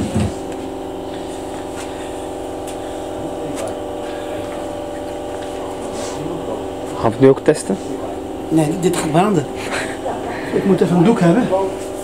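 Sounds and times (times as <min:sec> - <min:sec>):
small electric motor humming: 0:00.0 - 0:12.0.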